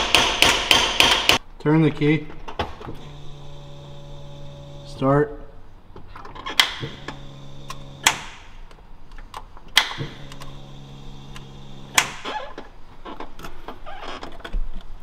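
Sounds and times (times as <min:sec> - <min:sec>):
electrical hum: 0:02.9 - 0:09.0, 0:09.6 - 0:12.7.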